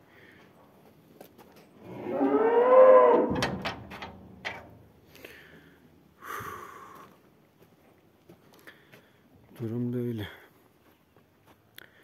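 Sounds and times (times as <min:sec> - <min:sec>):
cow mooing: 0:01.8 - 0:03.6.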